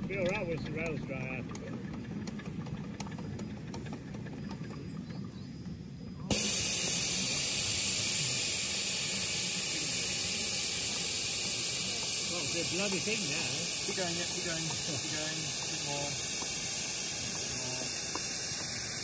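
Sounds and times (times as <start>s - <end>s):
steam hissing: 6.3s - 19.0s.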